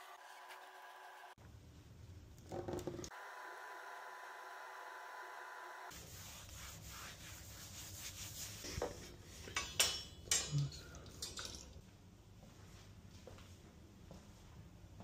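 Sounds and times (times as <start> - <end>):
hand rubbing a wall: 5.9 - 9.2.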